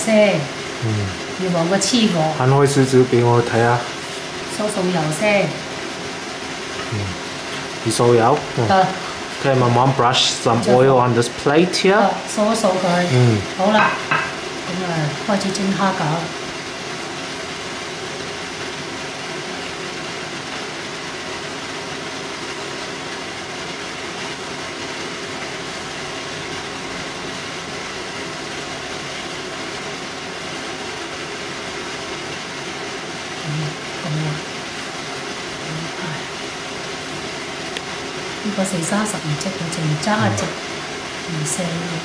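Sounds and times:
faint hum: 0.0 - 42.0
short low sounds: 0.8 - 1.2, 6.9 - 7.2.

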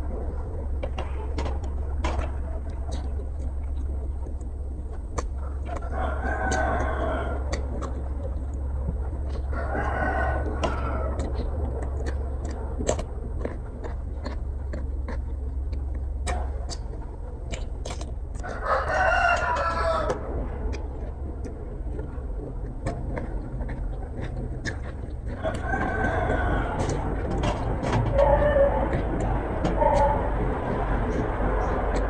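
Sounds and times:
close-up chewing: 0.0 - 32.0
steady low hum: 0.0 - 32.0
rooster crowing: 5.8 - 7.6, 9.5 - 11.3, 18.4 - 20.2, 25.4 - 29.2.

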